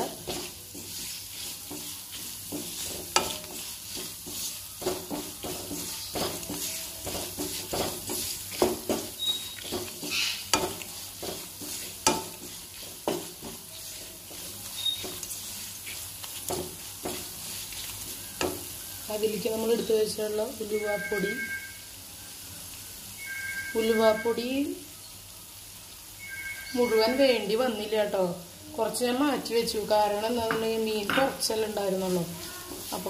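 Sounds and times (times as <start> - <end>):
wooden spatula scraping pan: 0.0 - 19.9, 30.0 - 33.0
spices sizzling in oil: 0.0 - 33.0
spatula knocking against pan: 1.7 - 13.7, 16.5 - 17.3, 30.4 - 31.4.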